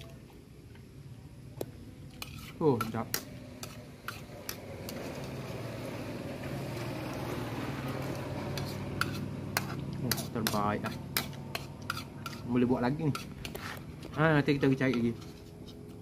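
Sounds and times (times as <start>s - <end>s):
spoon scraping plastic bowl: 2.1s - 5.6s, 8.0s - 16.0s.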